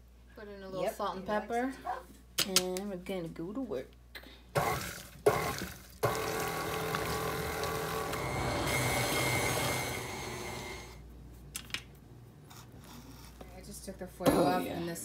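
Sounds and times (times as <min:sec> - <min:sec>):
stand mixer running: 0:04.6 - 0:11.0.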